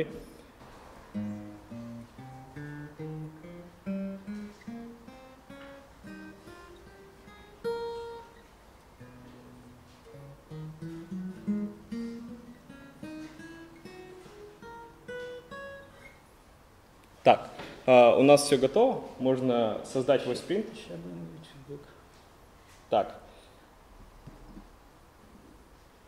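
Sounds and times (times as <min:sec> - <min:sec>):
acoustic guitar playing scales: 0:00.7 - 0:16.8.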